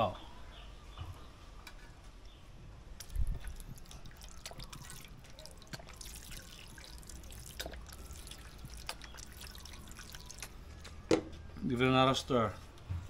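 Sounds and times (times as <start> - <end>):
sauce dribbling into pan: 3.0 - 11.0.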